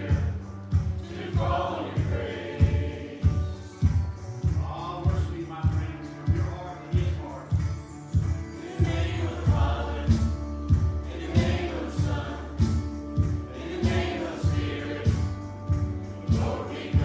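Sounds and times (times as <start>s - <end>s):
group singing a worship song: 0.0s - 4.0s, 8.6s - 17.0s
instrumental accompaniment: 0.0s - 17.0s.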